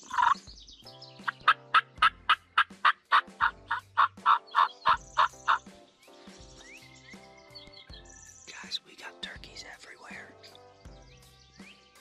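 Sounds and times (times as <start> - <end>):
turkey calling: 0.0 - 0.4, 1.3 - 5.7
turkey yelps: 0.0 - 0.4, 1.3 - 5.6.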